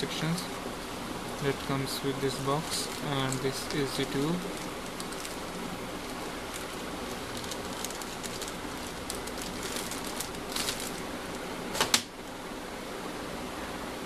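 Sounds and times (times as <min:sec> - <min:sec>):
steady hiss: 0:00.0 - 0:14.0
plastic wrapping crinkling: 0:01.3 - 0:12.0.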